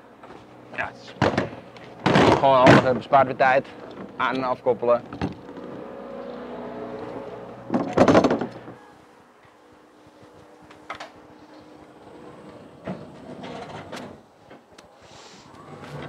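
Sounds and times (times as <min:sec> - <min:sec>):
truck door metallic clatter: 0:07.7 - 0:08.8.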